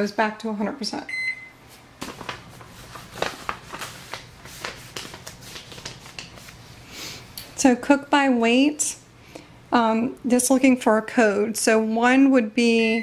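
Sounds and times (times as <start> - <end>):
microwave keypad beep: 1.1 - 1.6
soft rustling: 1.7 - 6.8.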